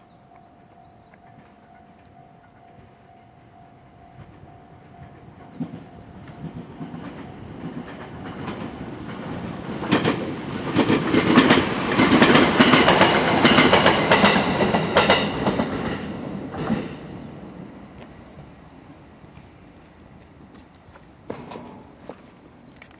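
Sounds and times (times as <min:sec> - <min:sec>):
train wheels clacking over rail joints: 0:04.2 - 0:17.0, 0:21.3 - 0:22.2.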